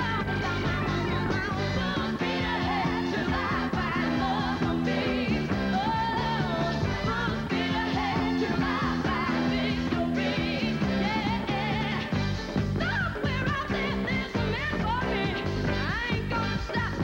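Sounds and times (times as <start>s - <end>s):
backing singers: 0.0s - 12.2s
bass: 0.0s - 17.0s
keyboard: 0.0s - 17.0s
woman singing lead vocals: 0.0s - 17.0s.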